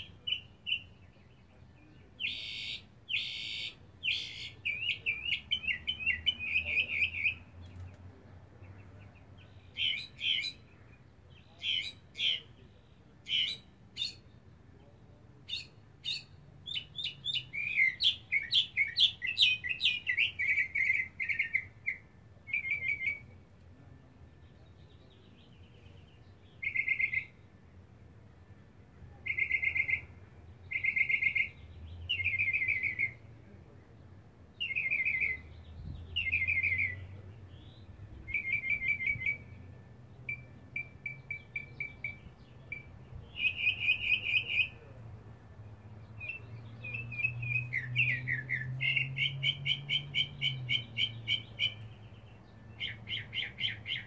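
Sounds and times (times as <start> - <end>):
mockingbird singing: 0.0 - 23.4, 24.1 - 27.5, 29.2 - 33.3, 34.6 - 45.0, 45.6 - 54.0.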